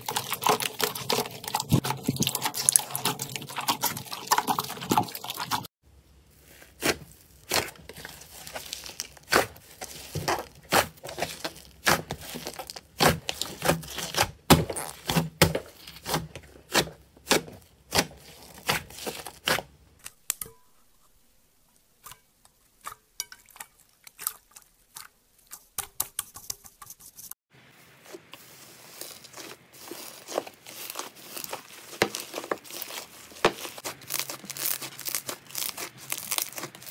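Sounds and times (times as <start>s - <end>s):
slime squelching and popping: 0.0s - 5.7s, 6.3s - 20.3s, 28.0s - 36.9s
foamy slime fizzing crackle: 6.3s - 14.2s, 27.6s - 36.9s.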